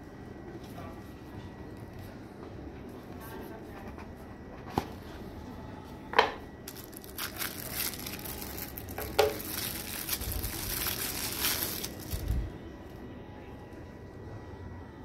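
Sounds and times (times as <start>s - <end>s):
plastic wrapping crinkling: 6.7s - 12.5s.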